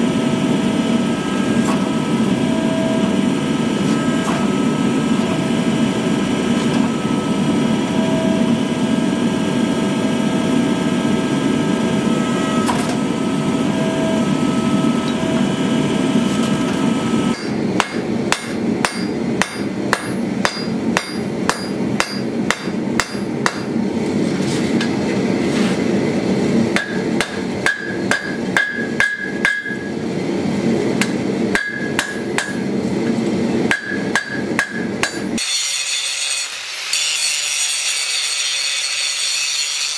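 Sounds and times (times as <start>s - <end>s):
forging press machine noise: 0.0s - 39.9s
hammer striking steel on anvil: 17.3s - 23.8s, 26.7s - 30.0s, 31.0s - 32.7s, 33.7s - 39.9s.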